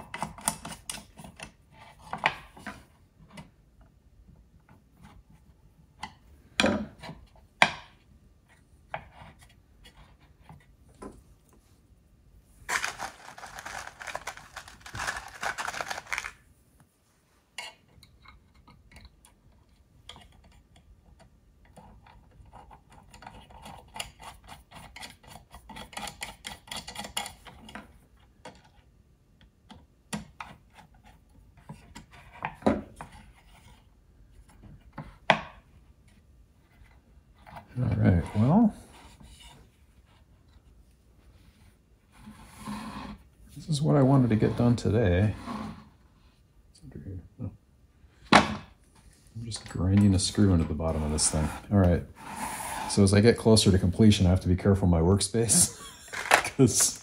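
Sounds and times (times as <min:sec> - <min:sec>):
rustling and scraping: 0:12.5 - 0:17.9, 0:30.5 - 0:46.5, 0:48.1 - 0:53.8.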